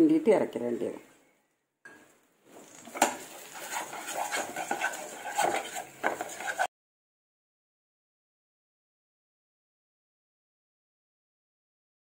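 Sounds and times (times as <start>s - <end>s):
spatula scraping frying pan: 2.5s - 6.7s
spatula knocking on pan: 2.9s - 6.7s.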